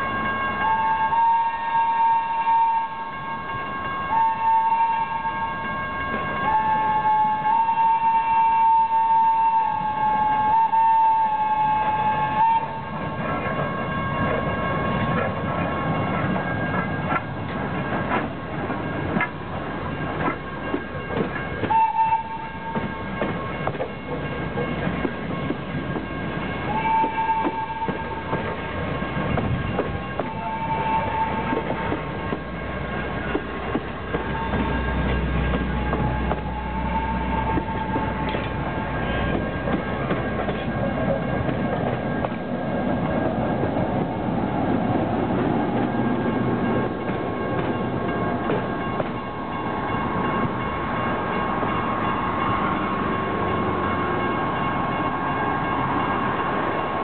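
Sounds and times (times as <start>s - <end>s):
steam train whistle: 0.0s - 13.0s, 21.6s - 23.4s, 26.4s - 28.6s, 29.8s - 32.2s, 34.0s - 40.5s
passenger coaches rumbling: 0.0s - 57.0s
train wheels clacking over rails: 13.2s - 57.0s.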